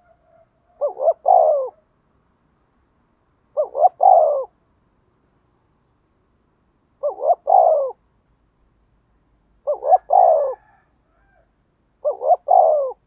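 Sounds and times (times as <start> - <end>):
dove cooing: 0.0 - 1.9, 3.5 - 4.6, 7.0 - 8.0, 9.6 - 13.0.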